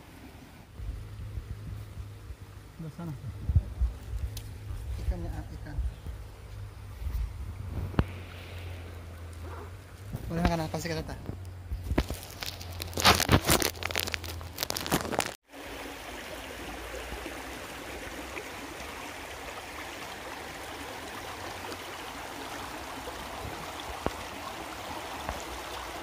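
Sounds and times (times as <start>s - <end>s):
stream rushing over stones: 11.9s - 26.0s.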